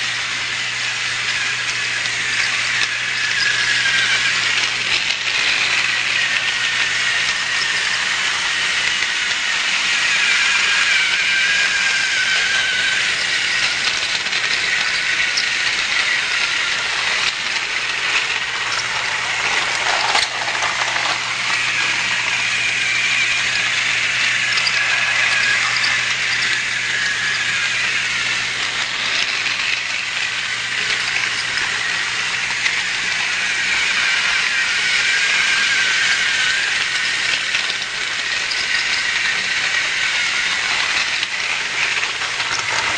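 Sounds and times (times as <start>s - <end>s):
toy train motor whirring: 0.0s - 42.9s.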